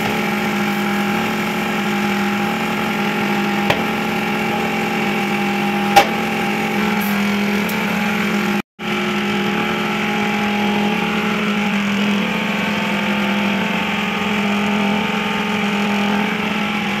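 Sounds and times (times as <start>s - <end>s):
motor humming: 0.0s - 17.0s.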